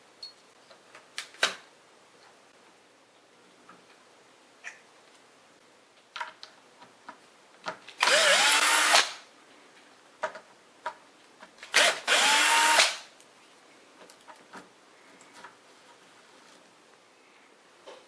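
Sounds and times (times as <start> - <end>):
cordless drill spinning: 8.0 - 9.2, 11.7 - 13.1.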